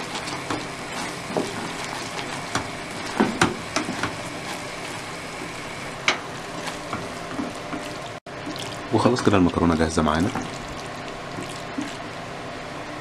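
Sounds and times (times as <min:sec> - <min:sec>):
sauce sizzling: 0:00.0 - 0:12.5
spoon knocking and scraping pot: 0:02.5 - 0:04.6.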